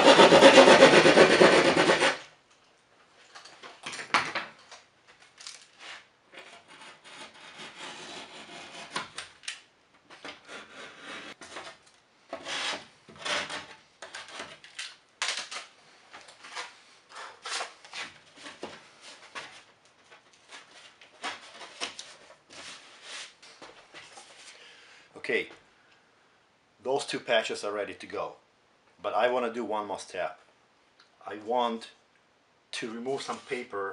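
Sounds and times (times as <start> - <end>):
utility knife cutting drywall: 0.0 - 2.3, 6.4 - 9.3, 10.2 - 14.6.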